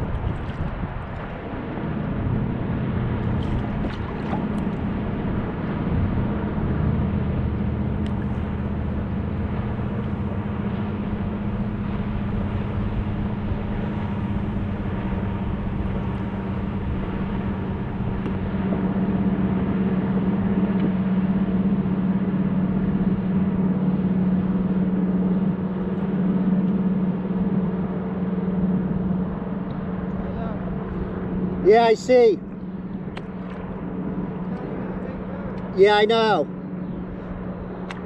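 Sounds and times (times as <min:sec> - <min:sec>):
wind noise: 0:00.0 - 0:23.8
motor hum: 0:00.0 - 0:38.0
water: 0:00.0 - 0:38.0.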